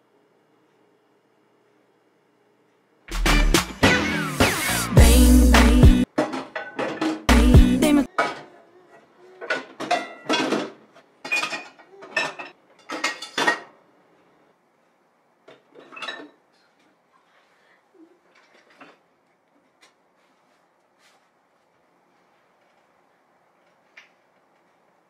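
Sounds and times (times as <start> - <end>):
dishes clattering into metal sink: 6.2 - 7.3, 9.4 - 13.8, 15.5 - 16.4.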